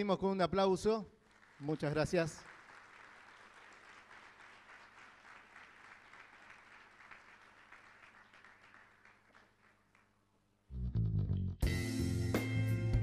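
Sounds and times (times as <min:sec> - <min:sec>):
audience applause: 0:01.3 - 0:10.2
music: 0:10.7 - 0:13.0.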